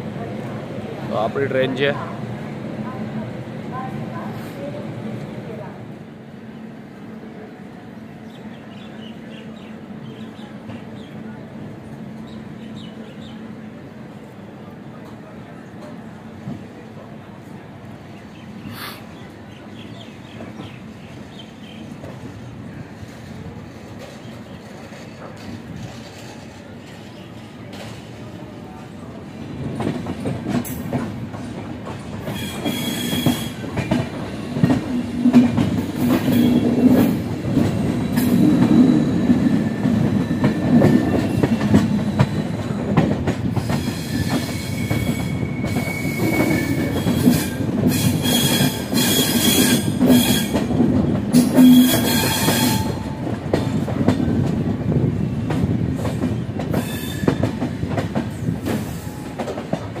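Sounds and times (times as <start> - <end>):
train rumble: 0.0 - 60.0
wheels squealing on rails: 32.2 - 54.4, 56.1 - 59.6.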